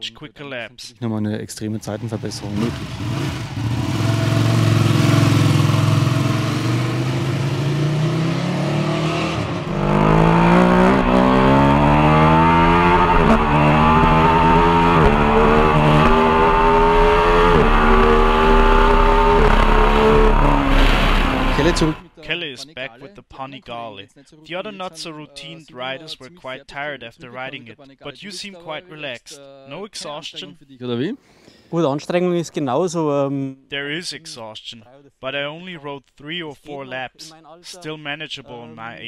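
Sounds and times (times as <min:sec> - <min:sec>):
motorcycle engine accelerating: 0:01.9 - 0:22.1.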